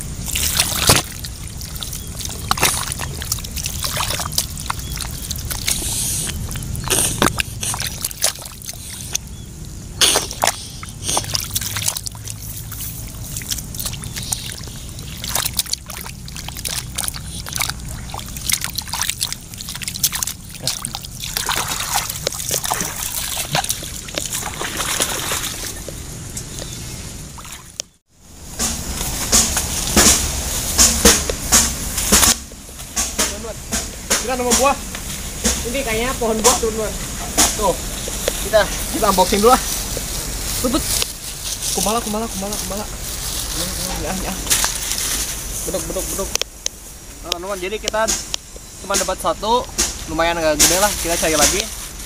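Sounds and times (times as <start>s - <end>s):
water splashing into mud: 0.0s - 27.8s
running water hiss: 0.0s - 52.0s.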